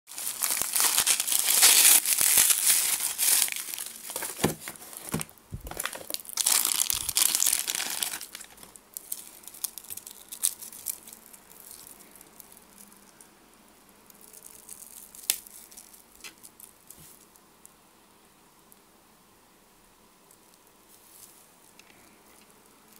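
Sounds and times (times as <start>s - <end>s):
bubble wrap crinkling: 0.1s - 13.0s, 14.1s - 17.3s.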